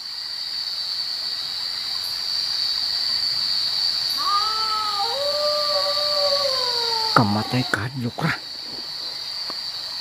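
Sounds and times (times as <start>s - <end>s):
crickets chirring: 0.0s - 10.0s
dog-like animal howl: 4.2s - 7.8s.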